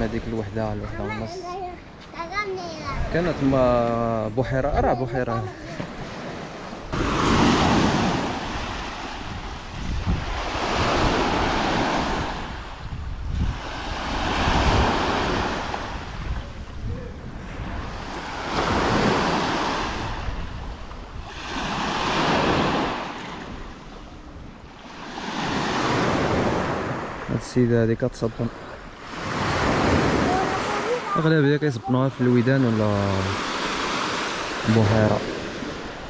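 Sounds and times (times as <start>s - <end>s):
small waves washing on shore: 0.0s - 36.0s
wind rumble on microphone: 6.8s - 24.8s.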